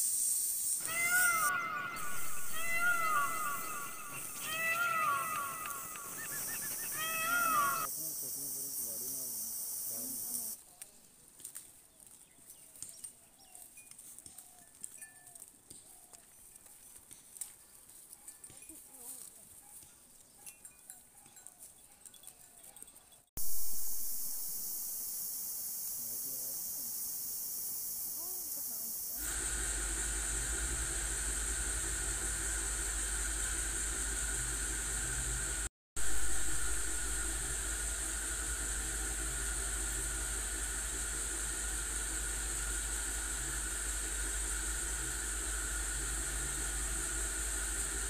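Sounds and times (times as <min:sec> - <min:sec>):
loud steady hiss: 0:00.0 - 0:10.6, 0:23.4 - 0:48.0
low hum: 0:00.8 - 0:07.0, 0:29.2 - 0:48.0
goats calling: 0:00.8 - 0:07.9.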